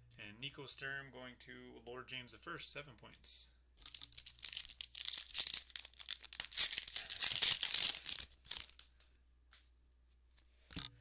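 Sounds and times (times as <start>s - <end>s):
wrapper tearing and crinkling: 3.8s - 8.8s
cards ticking: 3.8s - 9.0s.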